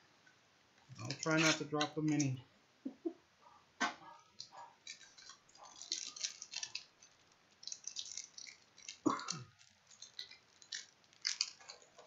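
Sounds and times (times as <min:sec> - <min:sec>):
wrapper crinkling torn open: 0:04.4 - 0:12.0.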